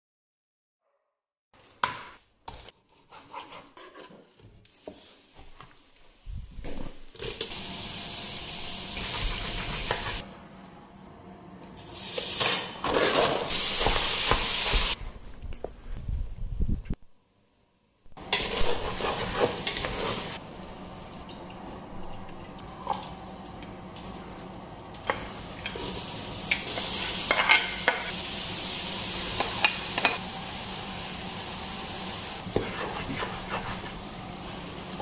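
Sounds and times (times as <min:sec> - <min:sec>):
food sizzling in a pot: 0:07.0 - 0:10.2, 0:11.8 - 0:15.0, 0:18.2 - 0:20.4, 0:25.0 - 0:35.0.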